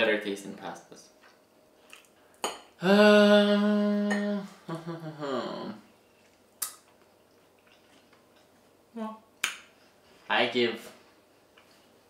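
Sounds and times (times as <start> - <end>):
person humming: 2.8 - 5.9.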